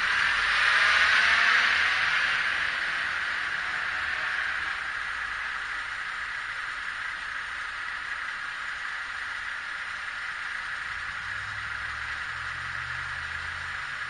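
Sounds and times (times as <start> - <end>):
steady hiss: 0.0 - 14.0
truck engine idling: 4.8 - 14.0.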